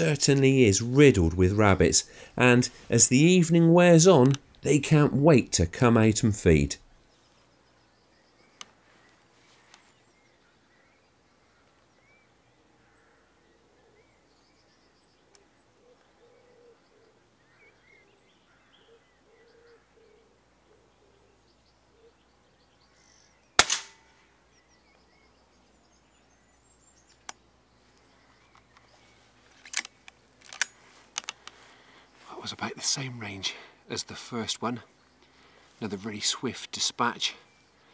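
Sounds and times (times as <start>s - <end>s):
faint birdsong: 0.0s - 37.9s
clicks: 4.2s - 4.6s, 29.6s - 31.6s
air rifle shot: 23.6s - 24.2s.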